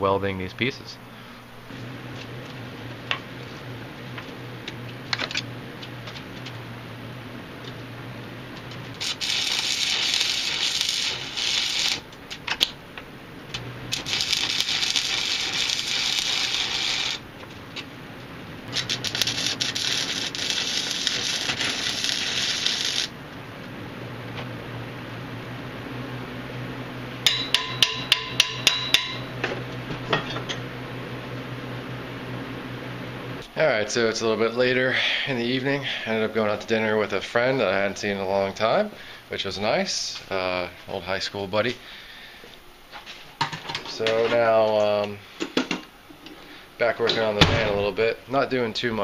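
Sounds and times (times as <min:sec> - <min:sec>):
low steady hum: 0:00.0 - 0:49.0
arc welding crackling: 0:01.6 - 0:24.7.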